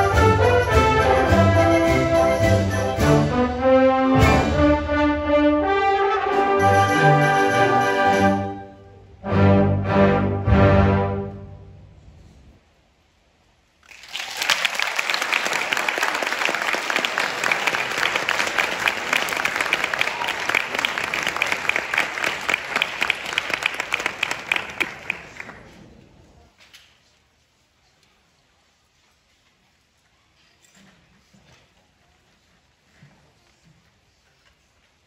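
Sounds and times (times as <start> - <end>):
audience applauding: 13.8 - 25.8.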